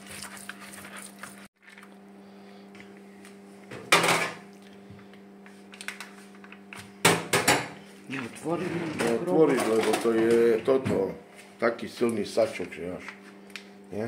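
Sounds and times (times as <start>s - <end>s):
kitchen handling sounds: 7.1s - 11.1s.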